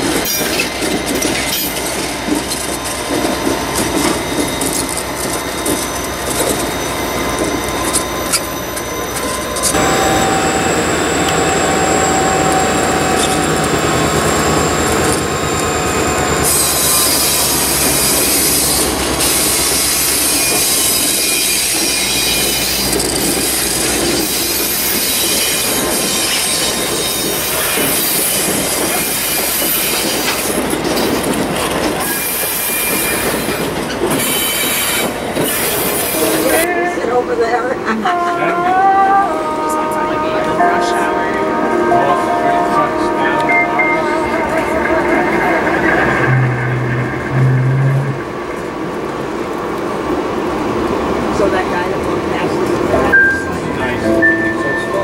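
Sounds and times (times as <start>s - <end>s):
train wheels on rails: 0.0s - 36.7s
diesel locomotive engines running: 0.0s - 55.0s
wheel squeal: 3.3s - 31.2s, 31.9s - 36.7s.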